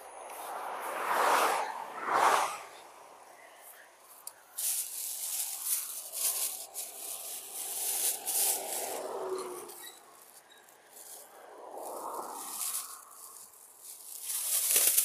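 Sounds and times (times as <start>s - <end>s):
plastic bag rustling: 4.6s - 15.0s.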